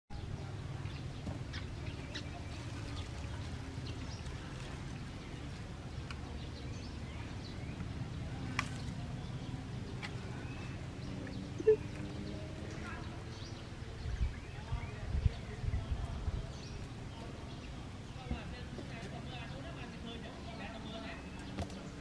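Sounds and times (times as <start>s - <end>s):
faint bird chirps: 8.6s - 12.1s.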